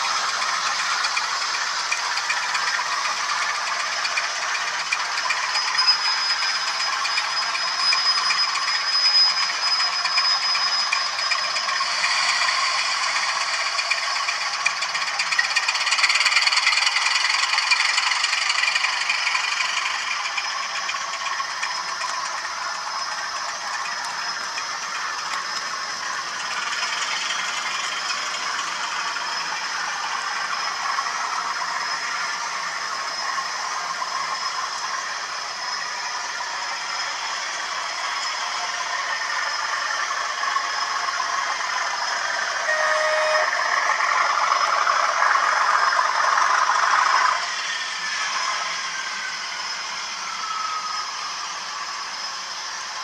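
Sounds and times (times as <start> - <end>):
model trains rattling on track: 0.0 - 53.0.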